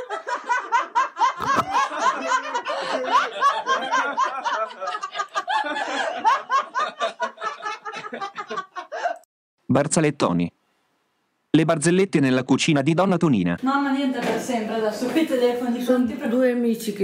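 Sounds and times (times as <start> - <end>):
crowd laughing: 0.0 - 9.3.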